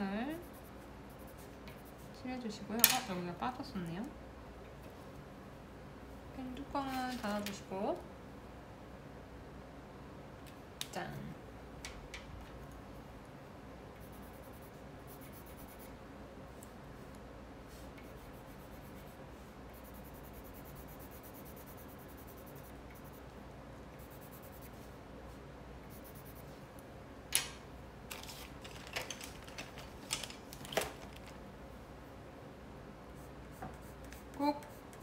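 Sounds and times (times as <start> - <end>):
pencil scratching on paper: 0.4 - 2.2, 14.0 - 15.9, 18.0 - 23.2, 24.0 - 24.9, 25.9 - 26.5.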